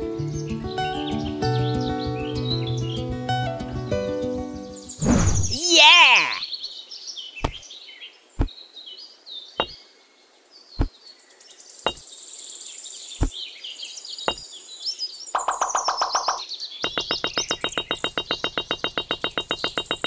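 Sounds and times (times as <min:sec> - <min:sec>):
birds chirping: 0:04.6 - 0:20.0
clay bricks clicking down: 0:16.9 - 0:20.0.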